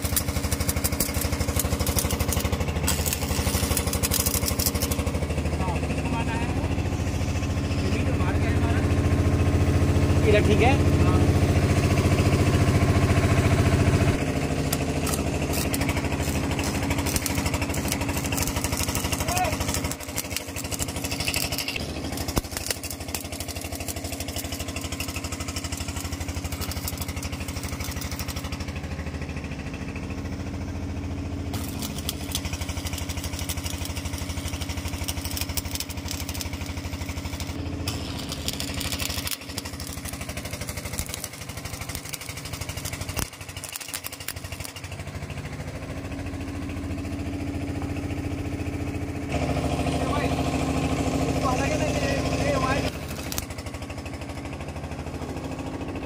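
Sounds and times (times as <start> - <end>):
engine running: 0.0 - 56.0
faint crackle: 31.6 - 44.8.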